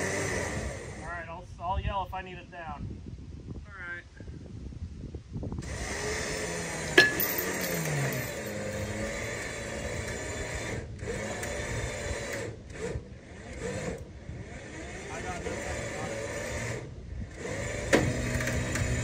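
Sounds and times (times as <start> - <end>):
electric winch motor whirring: 0.0 - 1.0, 5.6 - 19.0
sharp metal clank: 7.0 - 8.6.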